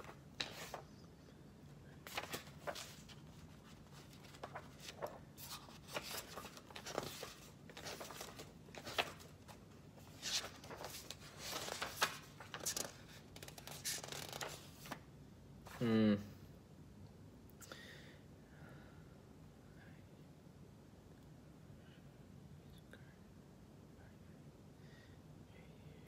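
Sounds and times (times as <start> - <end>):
book pages flipping: 0.0 - 1.0, 2.0 - 15.1.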